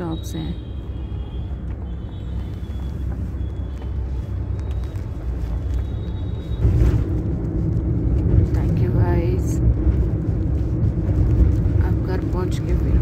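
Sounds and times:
engine and road noise rumble: 0.0 - 13.0.

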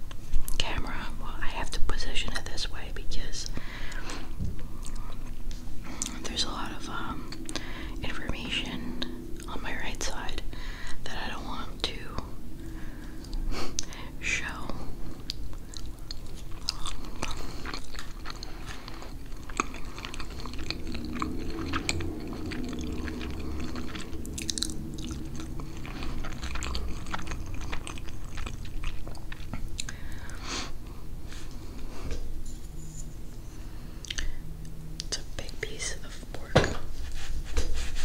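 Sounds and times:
close chewing: 15.1 - 30.4
wet mouth clicks: 15.2 - 30.0, 34.0 - 34.3.

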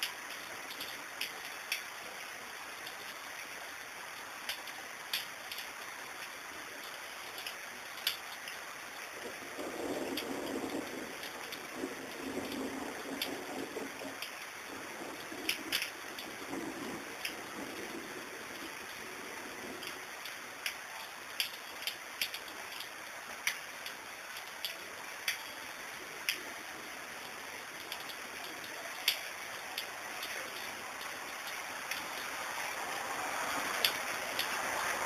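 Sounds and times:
steady rain hiss: 0.0 - 35.0
drops ticking on nearby surface: 27.2 - 32.3.

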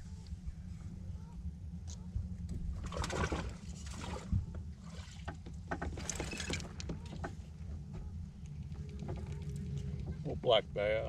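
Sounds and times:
low rumble: 0.0 - 11.0
fish splashing out of water: 2.8 - 5.2.

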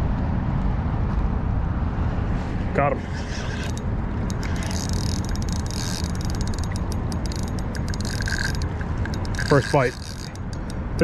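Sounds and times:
wind rumble on microphone: 0.0 - 11.0
fishing reel clicking: 3.5 - 11.0.

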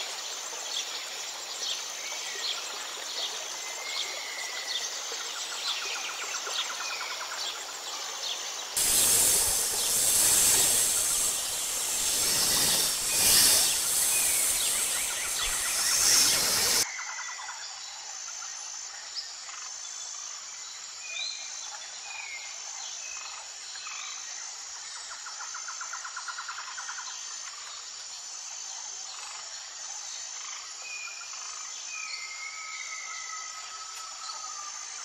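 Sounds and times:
bird chirps: 8.8 - 16.8
fast bird trill: 8.8 - 16.8
high insect chirring: 8.8 - 16.8
long whistled note: 8.8 - 16.8.

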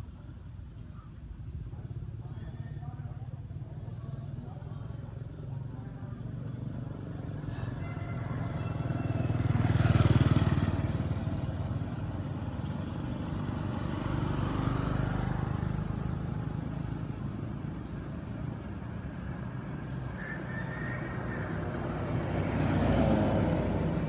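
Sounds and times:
vehicle engine passing: 6.2 - 24.0.

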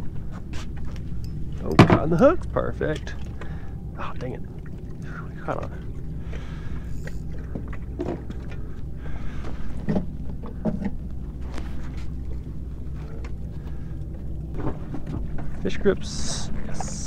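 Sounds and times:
footsteps on boat deck: 0.0 - 2.2, 5.7 - 17.0
low rumble: 0.0 - 17.0
knocks and clunks of gear: 14.1 - 15.6.

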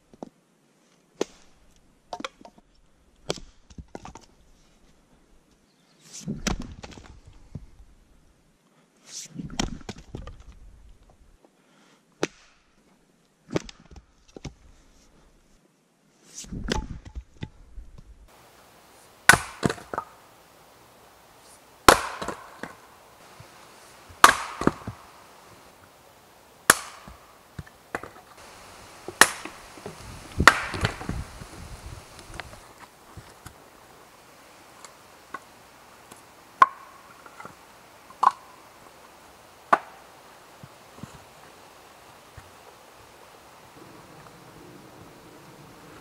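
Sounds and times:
axe splitting log: 19.2 - 21.0, 21.8 - 25.6, 26.6 - 32.6, 36.6 - 38.4, 39.7 - 40.1
hatchet striking kindling: 19.2 - 21.0, 21.8 - 25.6, 26.6 - 31.3
wood knocking: 24.2 - 25.6, 26.7 - 32.6.

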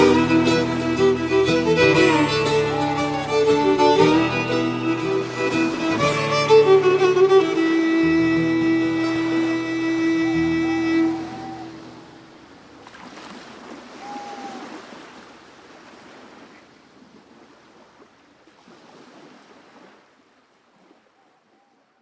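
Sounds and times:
fiddle note: 0.0 - 12.1
waves washing: 0.0 - 21.2.

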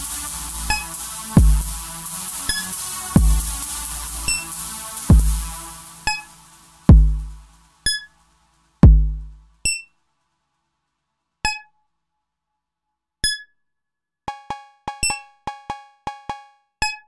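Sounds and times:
deep kick drum booms: 1.4 - 1.9, 3.2 - 3.6, 5.1 - 5.6, 6.9 - 7.4, 8.8 - 9.4.

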